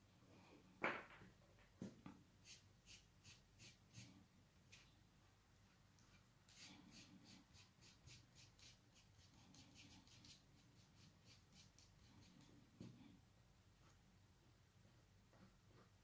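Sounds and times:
pencil scratching on paper: 2.4s - 4.9s, 6.5s - 12.6s.

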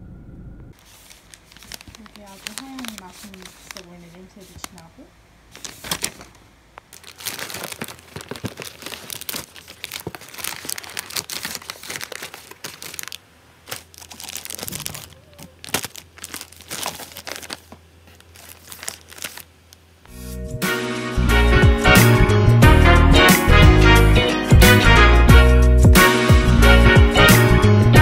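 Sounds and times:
plastic pouches crinkling: 0.8s - 19.9s.

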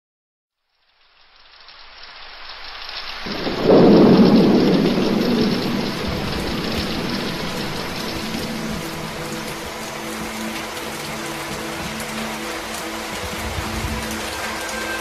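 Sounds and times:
steady rain hissing: 0.6s - 15.0s
thunder rolling: 3.3s - 10.4s, 13.1s - 15.0s.

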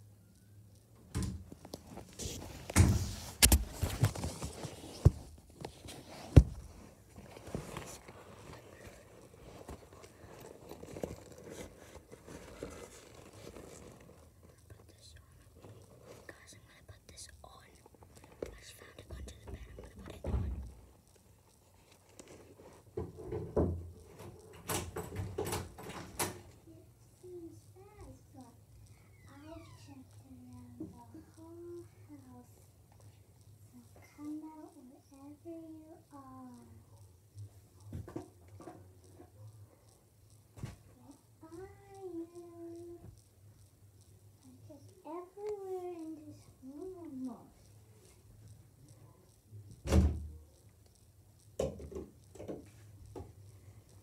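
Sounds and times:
phone being handled rustling: 1.5s - 14.3s.

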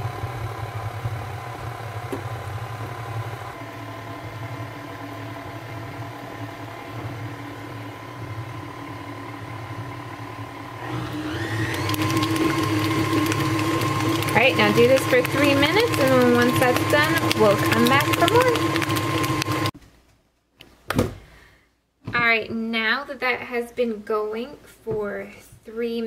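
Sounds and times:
stand mixer motor humming: 0.0s - 19.7s.

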